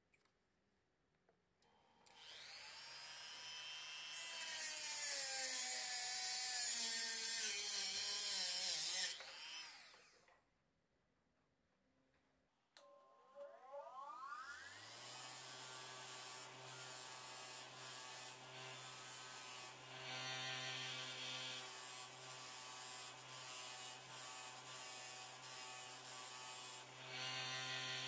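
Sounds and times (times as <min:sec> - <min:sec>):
bench grinder motor humming: 0:02.1 - 0:10.1, 0:14.4 - 0:28.0.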